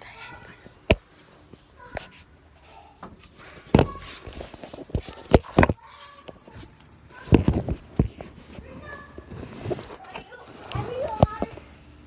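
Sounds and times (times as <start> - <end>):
phone handling knocks and rustles: 3.7 - 5.8.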